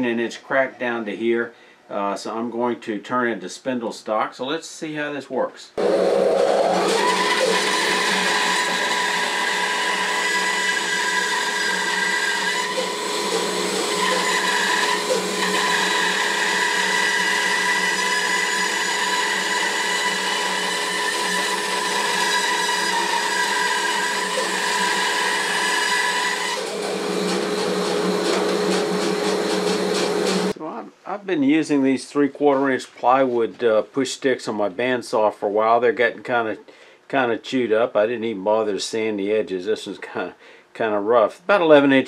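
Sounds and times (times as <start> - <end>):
bandsaw whine cutting wood: 5.8 - 30.6.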